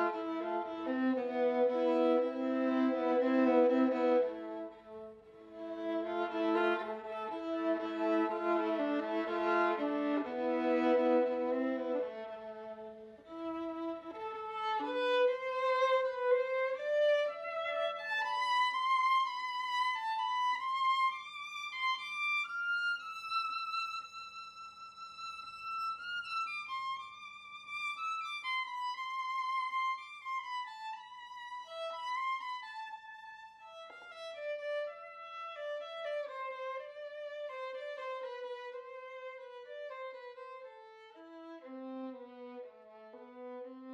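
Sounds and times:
solo violin melody: 0.0 - 43.9.

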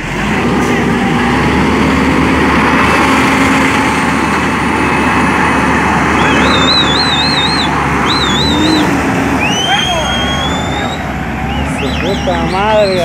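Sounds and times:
diesel engine running at low revs: 0.0 - 13.0
high warbling whistle: 6.2 - 12.3.

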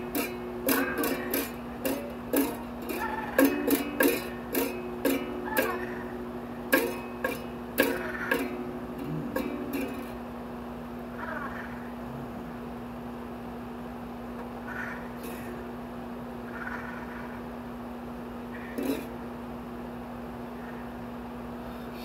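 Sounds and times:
plucked string notes: 0.0 - 10.7, 18.6 - 19.4
steady low hum: 0.0 - 22.0.

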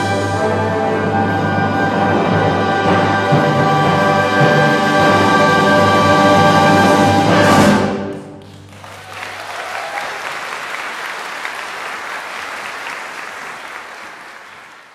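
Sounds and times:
audience applause: 8.4 - 14.9.

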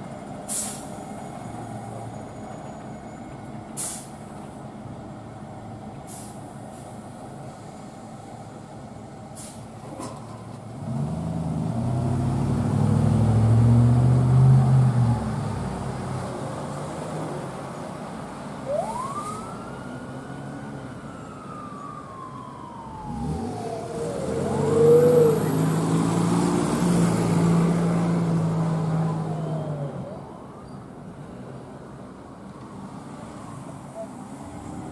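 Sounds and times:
siren chirp: 18.6 - 25.8
truck engine droning: 18.6 - 30.3
fire engine siren wailing: 18.6 - 30.8.

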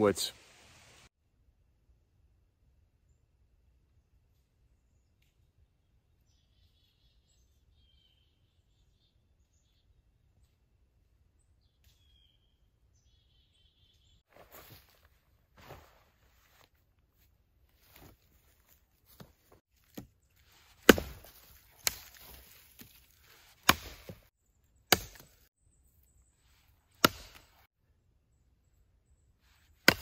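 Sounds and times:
knife chopping a branch: 19.1 - 24.3, 24.9 - 25.5, 26.9 - 27.7, 29.8 - 30.0.

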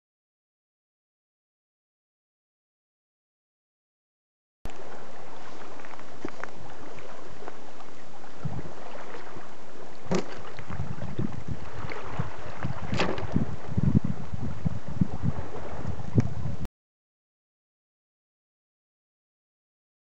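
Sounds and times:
wind buffeting microphone: 8.3 - 16.7.

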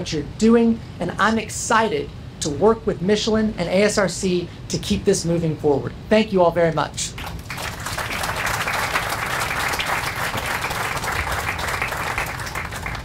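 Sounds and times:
audience applauding: 7.2 - 13.0.

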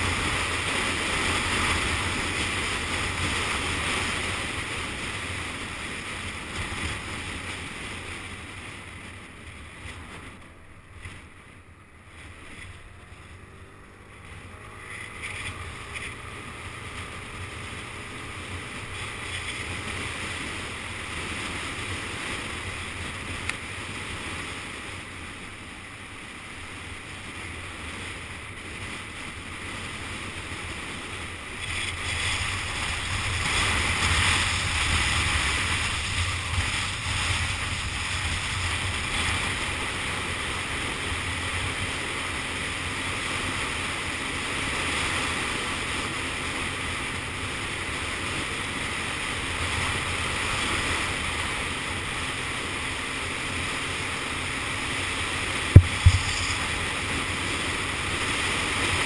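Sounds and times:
scooter road noise: 0.0 - 59.0
wind rushing over microphone: 0.0 - 59.0
sharp thumps: 55.7 - 57.0.

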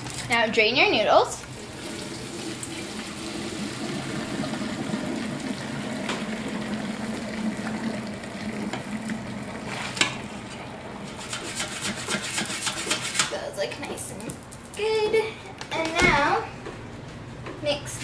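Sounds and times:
water pouring into metal colander: 1.6 - 10.4.

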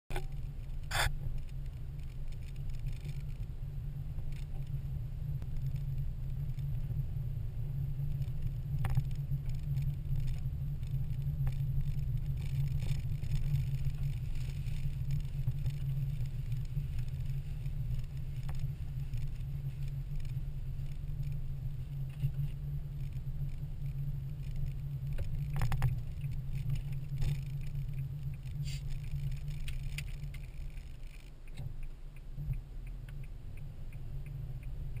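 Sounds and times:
car engine and road rumble: 0.1 - 35.0
sharp ticks: 8.0 - 35.0.

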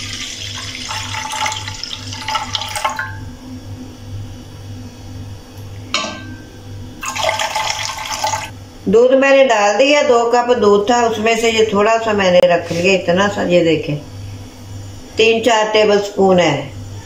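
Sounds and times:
milk pouring into metal pan: 0.0 - 3.1, 7.0 - 8.5.

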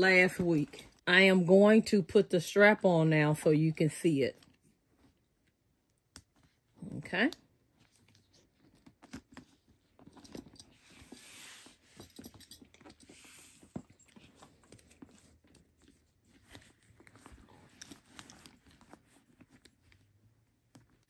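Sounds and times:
leather strap rustling: 7.6 - 21.0.

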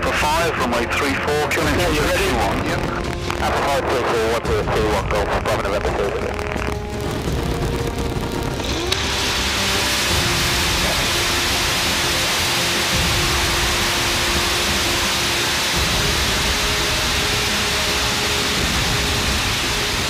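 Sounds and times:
light aircraft engine running: 5.5 - 20.0.

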